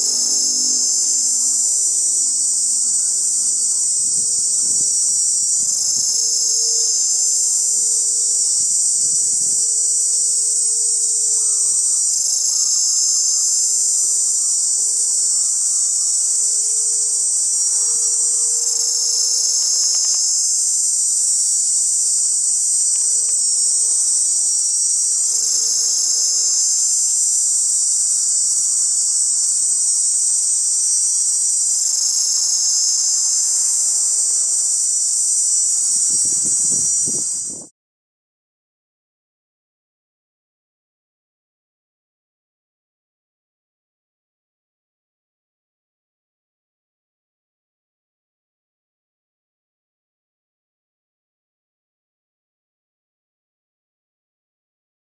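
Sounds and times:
cicada buzzing: 0.0s - 37.7s.

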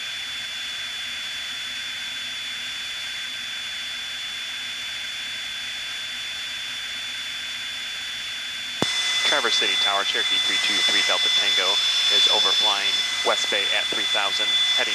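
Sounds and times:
aircraft cabin hiss and whine: 8.8s - 14.9s.

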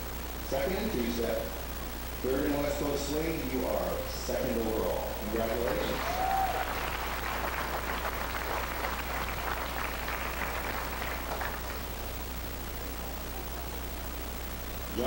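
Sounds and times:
people applauding: 5.3s - 12.0s.

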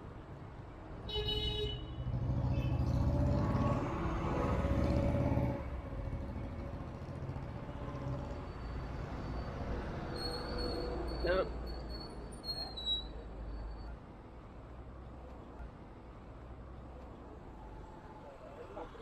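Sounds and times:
street traffic: 0.0s - 19.0s
vehicle engine passing: 2.1s - 8.5s.

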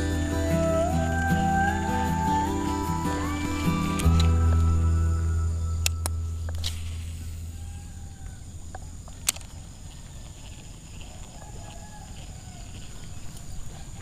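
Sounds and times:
distant animal calls: 0.0s - 6.4s.

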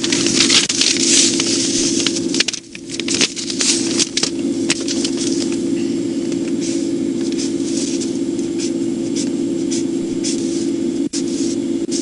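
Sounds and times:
crackles and rustling clicks: 0.0s - 6.6s
steady hum: 0.0s - 12.0s.

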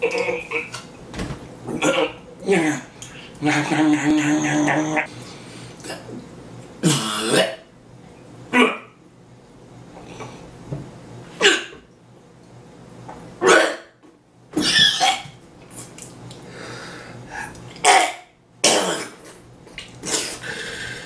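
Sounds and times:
man coughing and spluttering: 1.7s - 4.1s, 14.6s - 15.4s, 17.8s - 19.4s
breathing: 5.2s - 5.8s, 16.5s - 17.6s, 20.4s - 21.0s.

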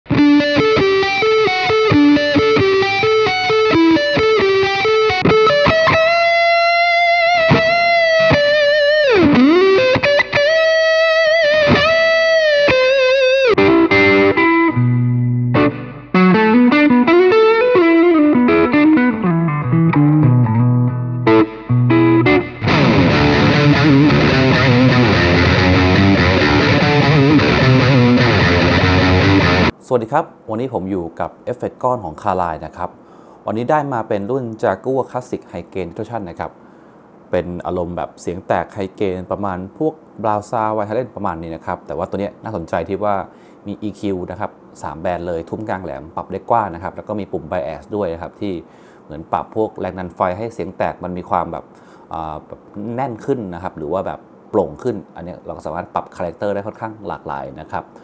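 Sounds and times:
distorted electric guitar: 0.1s - 29.7s.

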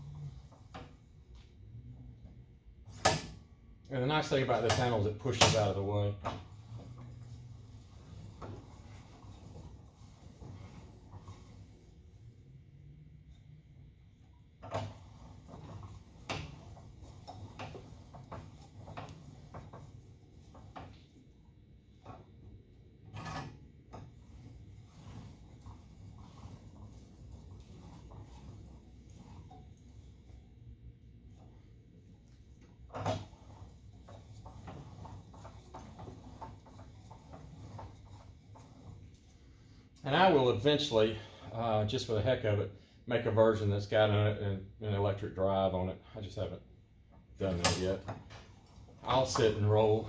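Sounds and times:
metal clicks and knocks of roller: 2.9s - 12.0s, 14.2s - 21.3s, 31.3s - 39.4s
hand-cranked roller knocking: 14.6s - 21.2s, 23.1s - 29.9s, 32.8s - 39.2s, 47.4s - 50.0s.

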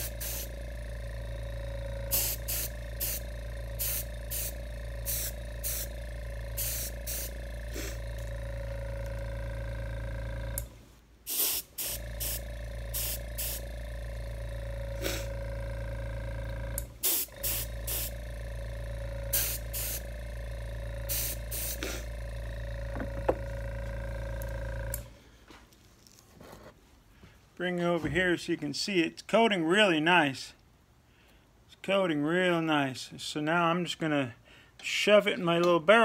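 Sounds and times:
spray gun hissing bursts: 0.0s - 10.6s, 11.2s - 15.6s, 16.9s - 23.5s
air compressor humming: 0.0s - 25.6s.

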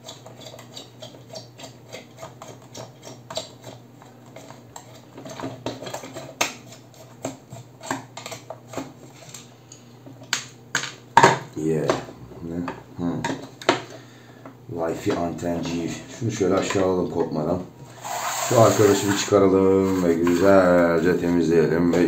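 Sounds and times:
steady low hum: 11.4s - 22.0s.

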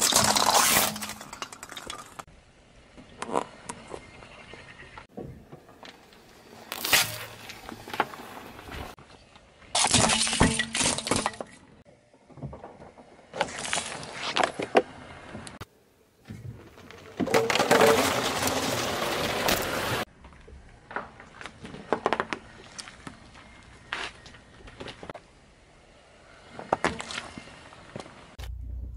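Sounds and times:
tyre crushing objects crunching: 0.0s - 2.0s, 6.6s - 8.9s, 16.6s - 20.0s.

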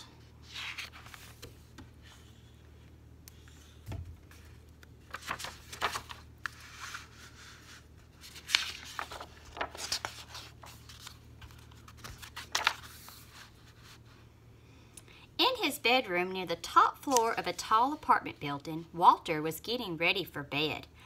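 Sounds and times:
pages turning: 0.4s - 2.5s, 3.3s - 14.1s.

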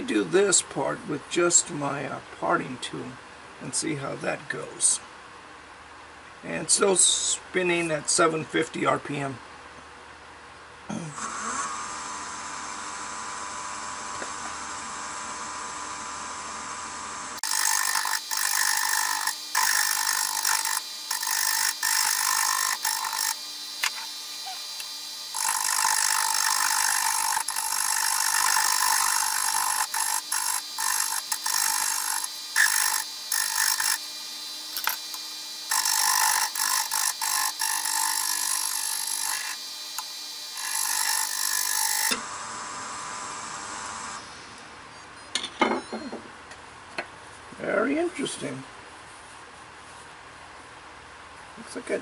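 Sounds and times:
lathe humming: 11.2s - 44.5s
hiss of wood shavings cutting: 17.5s - 41.4s.

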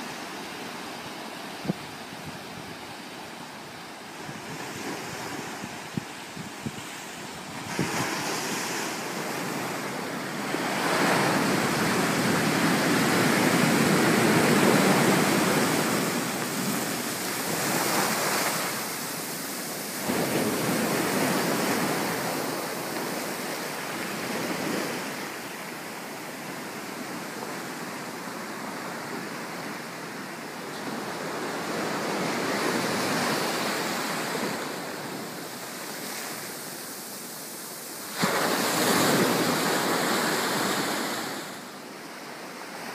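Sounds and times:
surf breaking on rocky shore: 4.2s - 25.4s, 32.2s - 41.6s.

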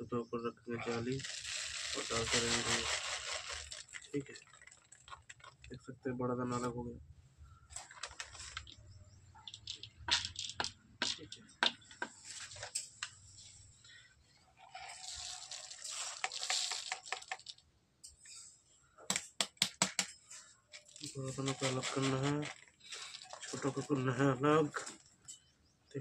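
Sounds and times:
plastic sheet crinkling: 0.8s - 5.7s, 7.8s - 8.7s, 14.6s - 17.6s, 20.8s - 24.2s
pellets rattling over wire sieve: 1.1s - 5.2s, 14.6s - 17.6s, 20.8s - 24.2s.

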